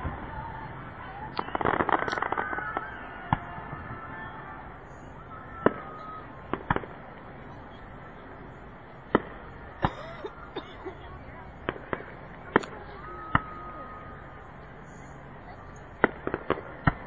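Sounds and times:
fireworks bangs: 0:00.0 - 0:07.4, 0:09.0 - 0:10.0, 0:15.9 - 0:17.0.

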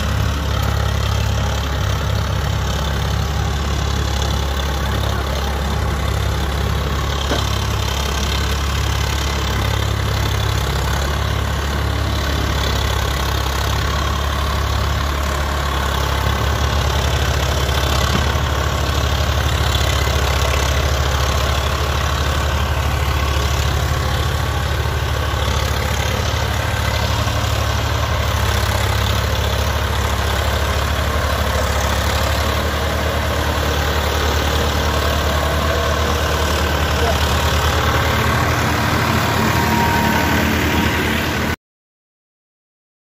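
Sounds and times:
diesel tractor engine running: 0:00.0 - 0:41.6.

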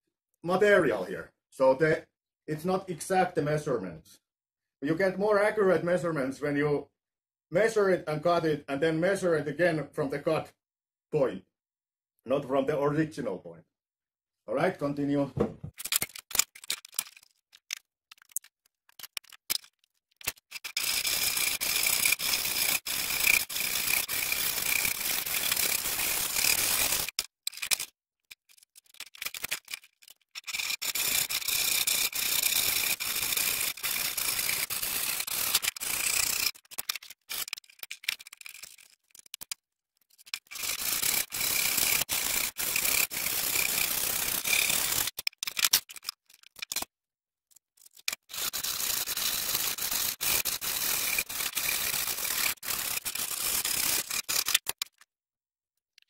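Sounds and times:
hand saw cutting wood: 0:20.2 - 0:27.9, 0:30.4 - 0:37.6, 0:40.4 - 0:45.2, 0:48.1 - 0:54.8.

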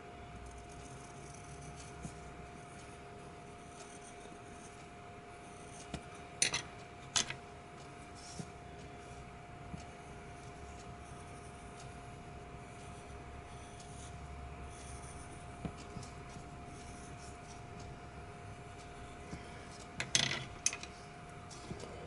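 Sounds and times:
faint steady hum: 0:00.0 - 0:22.0
pencil scratching on paper: 0:00.4 - 0:06.2, 0:07.9 - 0:09.2, 0:09.8 - 0:20.0.

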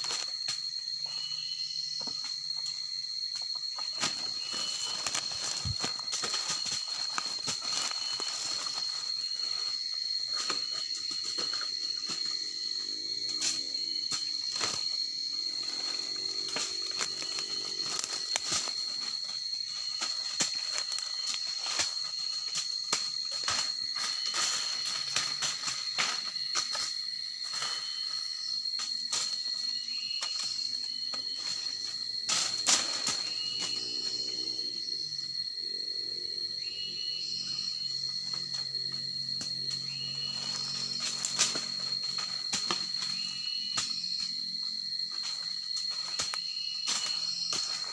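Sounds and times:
high-pitched insect drone: 0:00.0 - 0:47.9
rustling leaves and twigs: 0:00.0 - 0:47.9
dry leaves crackling and rustling: 0:04.0 - 0:09.4.

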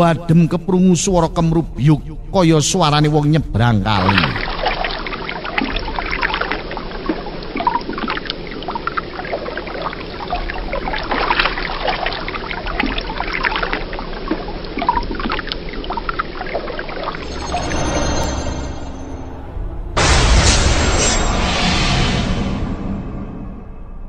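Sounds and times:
water splashing and sloshing: 0:03.8 - 0:19.4.

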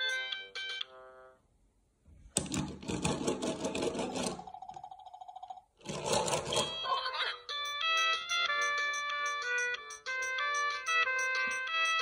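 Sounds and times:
electronic toy tune: 0:00.0 - 0:01.3, 0:06.6 - 0:12.0.

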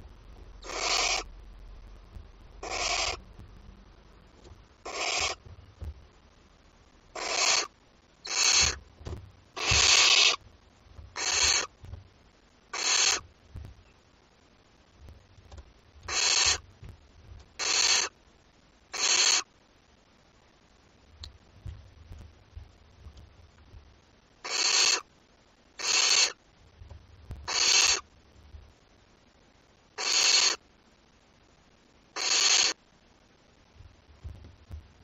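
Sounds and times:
owl chicks hissing calls: 0:00.6 - 0:01.3, 0:02.6 - 0:03.2, 0:04.8 - 0:05.4, 0:07.1 - 0:08.8, 0:09.6 - 0:10.4, 0:11.2 - 0:11.8, 0:12.7 - 0:13.3, 0:16.0 - 0:16.7, 0:17.6 - 0:18.2, 0:18.9 - 0:19.5, 0:24.4 - 0:25.1, 0:25.8 - 0:26.4, 0:27.4 - 0:28.1, 0:30.0 - 0:30.6, 0:32.1 - 0:32.8.

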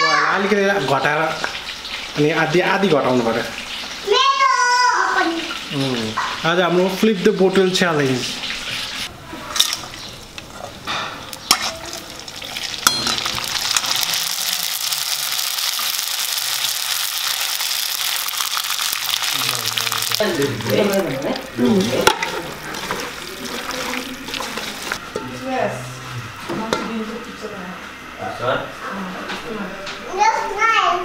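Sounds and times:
food deep-frying in oil: 0:00.0 - 0:25.1.

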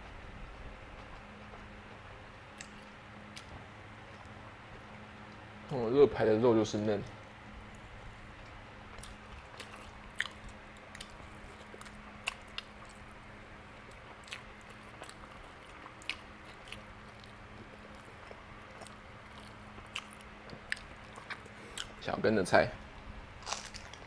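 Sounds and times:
man chewing: 0:00.5 - 0:05.5, 0:07.6 - 0:22.0, 0:23.4 - 0:24.0.

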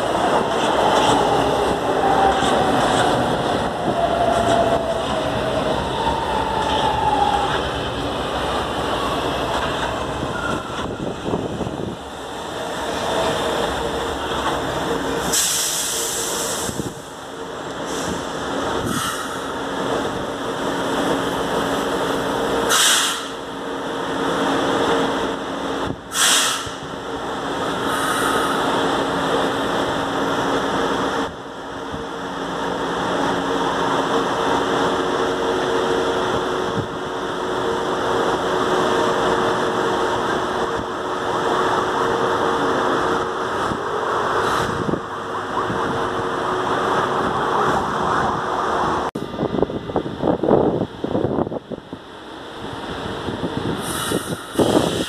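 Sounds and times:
train equipment humming: 0:00.0 - 0:55.0
short hisses: 0:26.1 - 0:26.8.

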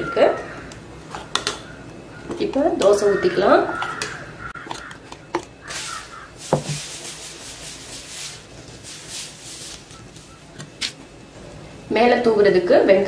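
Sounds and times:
ladle scraping griddle: 0:05.6 - 0:11.0.

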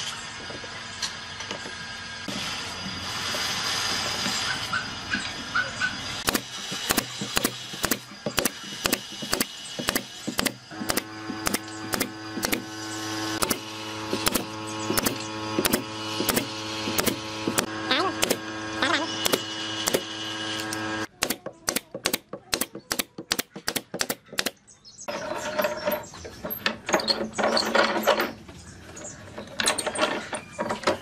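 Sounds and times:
steady multi-tone hum: 0:00.0 - 0:31.0
pneumatic nailer firing: 0:06.2 - 0:24.6.

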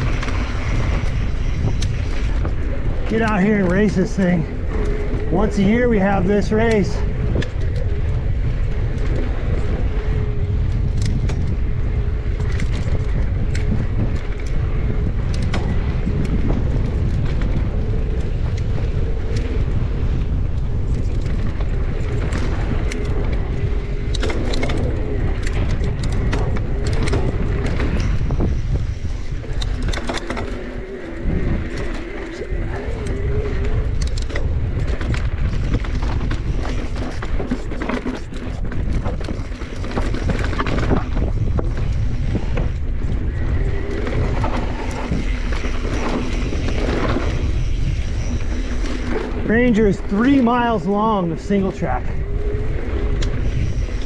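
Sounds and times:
bike clicks and rattles: 0:00.0 - 0:54.0
bike tyre noise: 0:00.0 - 0:54.0
wavering hum: 0:00.0 - 0:54.0
wind rumble on microphone: 0:00.0 - 0:54.0.

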